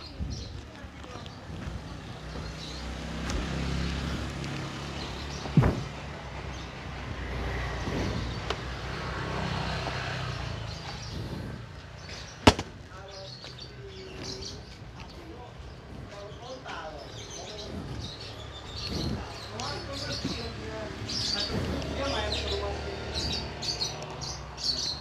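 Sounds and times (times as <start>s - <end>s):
street traffic rumble: 0.0s - 25.0s
sharp knocks: 5.4s - 6.0s, 12.4s - 12.8s.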